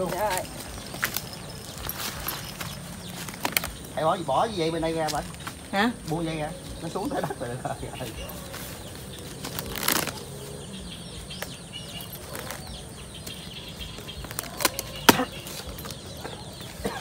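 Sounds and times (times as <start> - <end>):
branches snapping: 0.0 - 4.0, 8.4 - 10.4, 11.3 - 16.4
leaves and branches rustling: 0.0 - 17.0.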